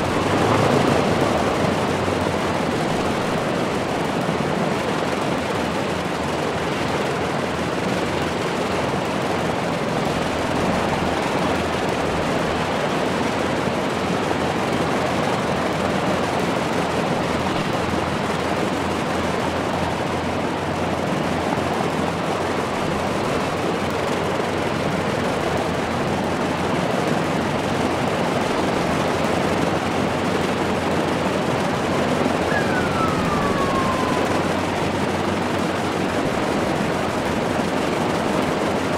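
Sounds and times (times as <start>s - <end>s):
aircraft engines running: 0.0s - 38.9s
short falling whistle: 32.5s - 34.5s.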